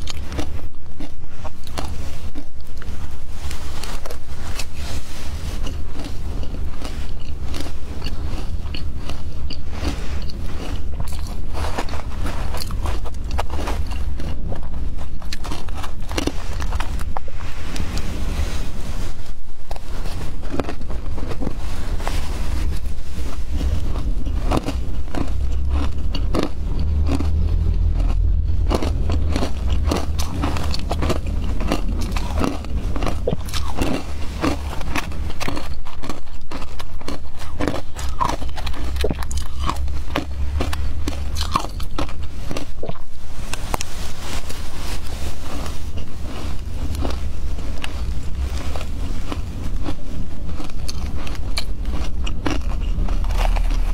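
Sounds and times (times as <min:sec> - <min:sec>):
low steady rumble: 0:00.0 - 0:53.9
shaved ice crunching: 0:00.0 - 0:53.9.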